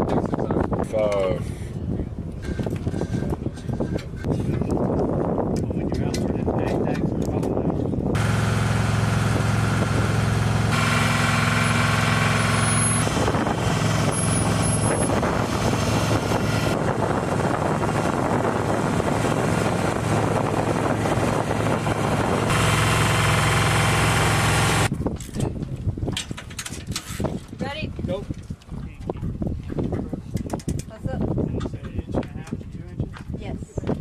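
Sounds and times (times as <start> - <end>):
ground equipment engine hum: 7.8 - 24.9.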